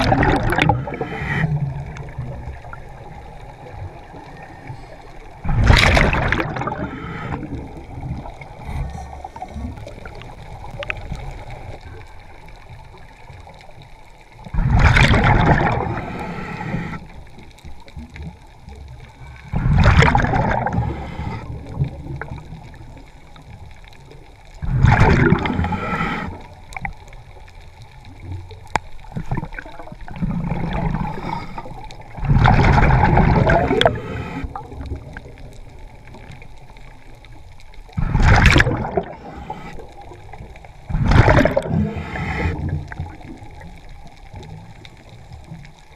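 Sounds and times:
regulator exhaust bubbling underwater: 0:00.0 - 0:04.4, 0:05.4 - 0:11.8, 0:14.5 - 0:16.2, 0:19.5 - 0:23.0, 0:24.6 - 0:27.0, 0:28.4 - 0:36.4, 0:38.0 - 0:45.9.

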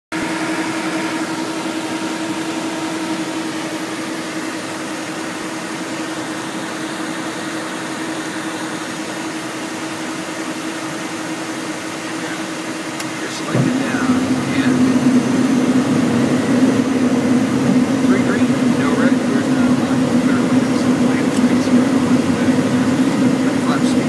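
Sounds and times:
steady low hum: 0:11.7 - 0:24.0
jet cockpit rushing hiss: 0:12.1 - 0:24.0.

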